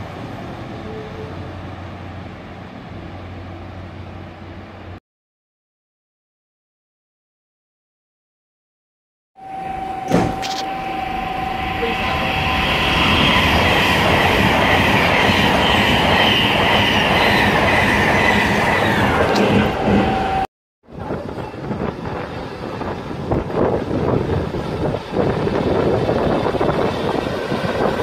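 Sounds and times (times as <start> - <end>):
diesel railcar pulling away: 9.4 - 20.5
electric train passing: 9.4 - 20.5, 21.3 - 28.0.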